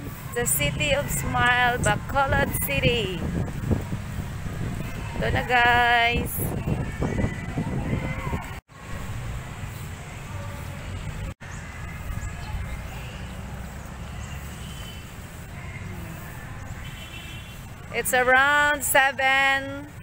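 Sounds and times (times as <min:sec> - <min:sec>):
low city rumble: 0:00.0 - 0:20.0
faint distant voices: 0:04.5 - 0:18.6.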